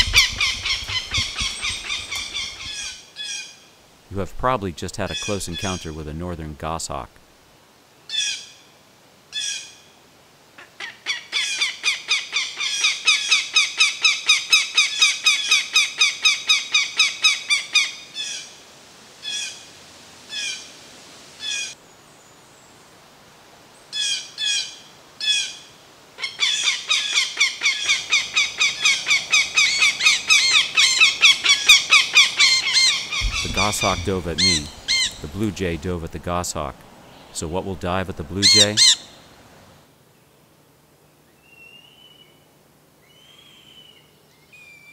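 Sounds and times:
hawk alarm call: 0:00.0 - 0:03.5, 0:05.0 - 0:06.2, 0:10.6 - 0:18.5, 0:23.9 - 0:39.3.

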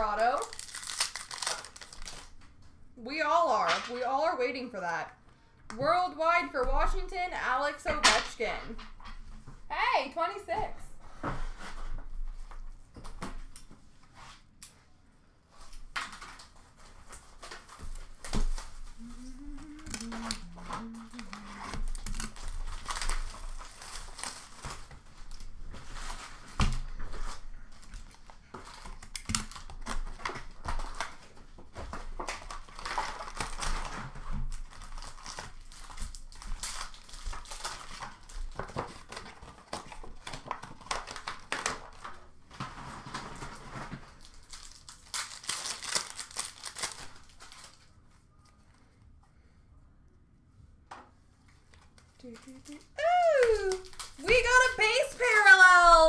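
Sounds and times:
plastic wrappers tearing and crinkling: 0:00.0 - 0:02.6, 0:15.6 - 0:48.8, 0:51.6 - 0:56.0
cards rustling: 0:00.2 - 0:02.4, 0:15.6 - 0:26.5, 0:51.6 - 0:56.0.

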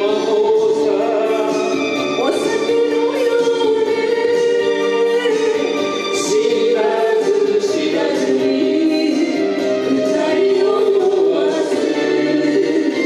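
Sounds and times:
backing track: 0:00.0 - 0:13.0.

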